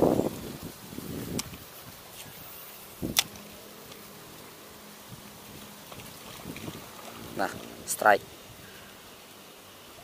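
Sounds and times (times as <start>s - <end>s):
faint steady hiss: 0.0s - 10.0s
faint soft ticks: 1.3s - 1.6s.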